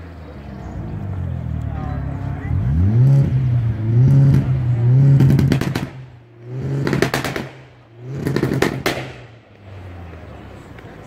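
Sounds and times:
car engine revving and idling: 0.0s - 11.0s
exhaust crackling and popping: 3.1s - 9.8s.

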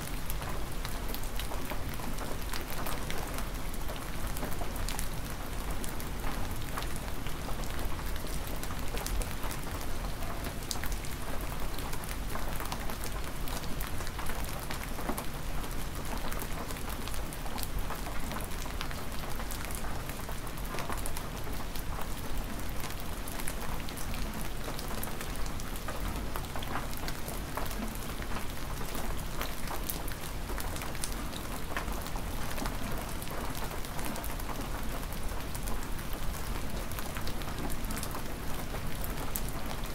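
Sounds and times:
hard rain falling: 0.0s - 39.9s.

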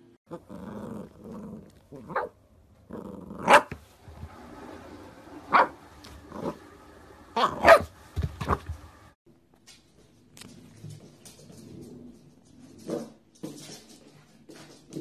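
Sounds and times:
puppy growling: 0.3s - 3.8s, 5.6s - 6.7s
puppy barking and yipping: 2.1s - 2.4s, 3.4s - 3.8s, 5.5s - 5.8s, 7.4s - 8.6s.

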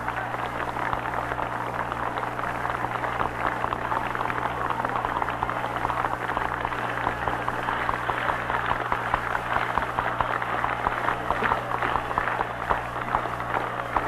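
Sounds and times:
crowd applauding: 0.0s - 14.0s.

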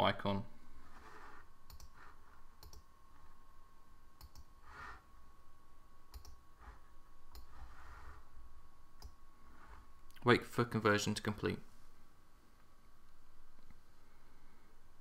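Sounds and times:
faint high hum: 0.0s - 15.0s
computer mouse clicks: 1.7s - 2.9s, 4.2s - 4.5s, 6.1s - 7.6s.

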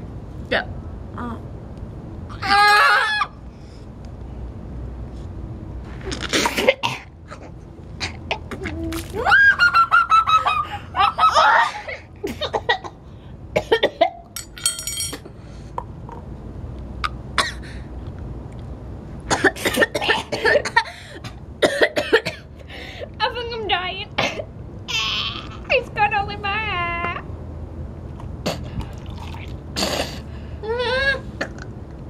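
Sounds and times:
people coughing and gagging: 19.3s - 20.9s, 21.6s - 22.5s.

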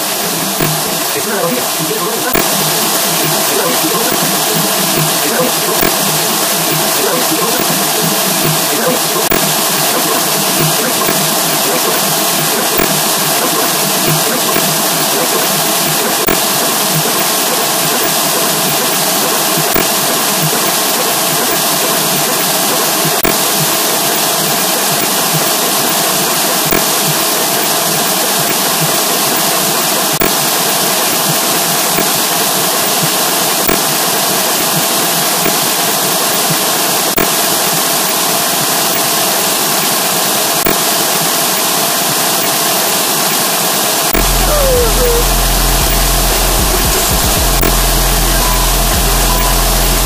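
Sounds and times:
loud distorted noise: 0.0s - 38.3s, 44.0s - 50.0s
click: 9.2s - 21.6s, 32.8s - 33.9s, 37.2s - 37.4s, 40.6s - 40.8s
deep pulsing bass: 44.2s - 50.0s
hum-like tone: 44.2s - 50.0s.

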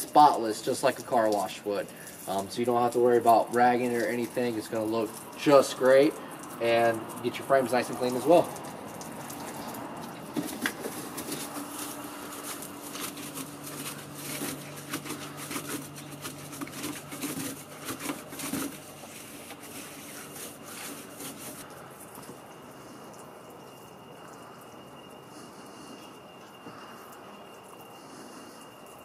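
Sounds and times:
brush scrubbing glass: 0.0s - 21.9s
low steady hum: 0.0s - 29.0s.

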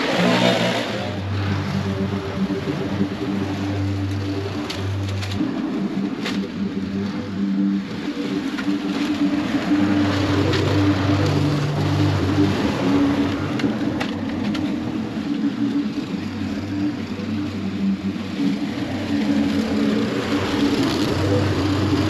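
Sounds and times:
lawn mower engine cutting grass: 0.0s - 22.0s.

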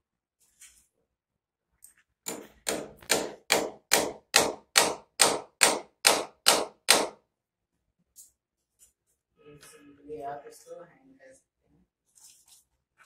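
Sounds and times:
hammer hitting a nail: 2.2s - 7.2s.

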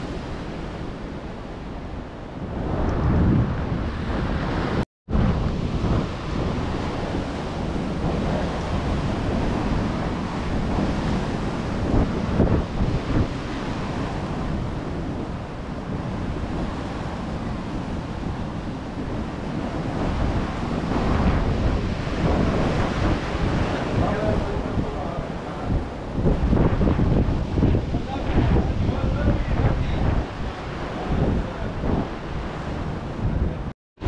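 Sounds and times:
ocean surf breaking on rocks: 0.0s - 33.7s
wind buffeting microphone: 0.0s - 33.7s.

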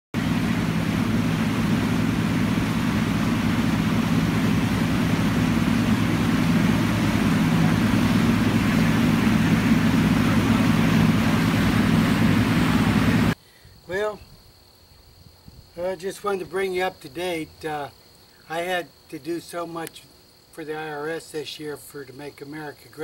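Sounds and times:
boat engine droning: 0.1s - 13.4s
water rushing in wake: 0.1s - 13.4s.

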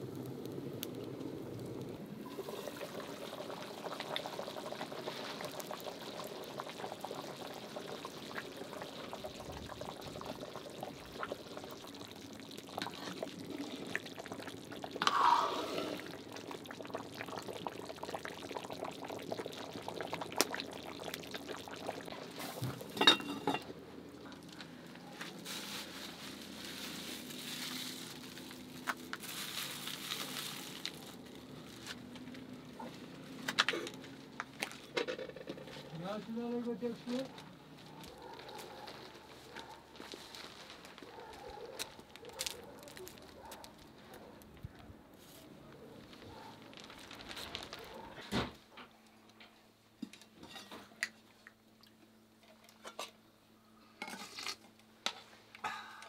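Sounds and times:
stew bubbling in a pot: 0.0s - 45.1s, 45.7s - 48.5s
liquid pouring: 1.6s - 24.6s.

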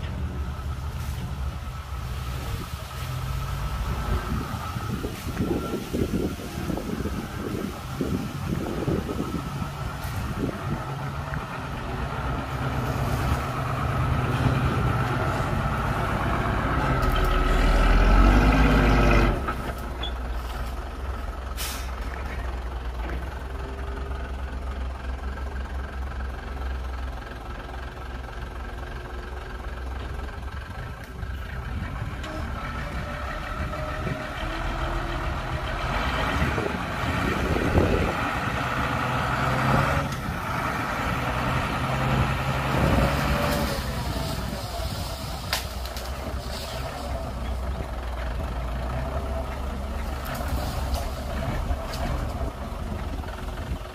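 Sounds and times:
heavy diesel engines rumbling: 0.0s - 53.9s
brief hiss: 21.6s - 22.0s.

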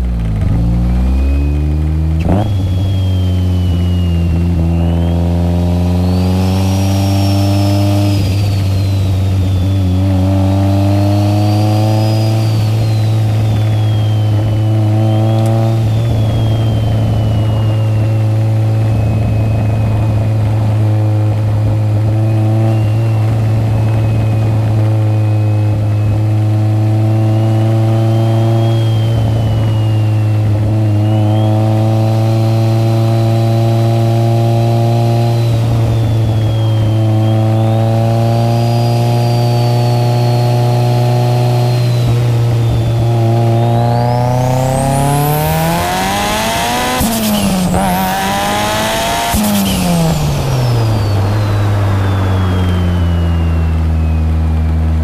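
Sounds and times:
car engine accelerating: 0.0s - 55.0s
turbo whine: 0.0s - 55.0s.

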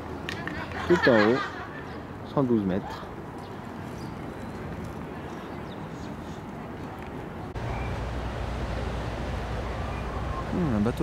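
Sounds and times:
outdoor background noise: 0.0s - 11.0s
steady low rumble: 7.5s - 11.0s.

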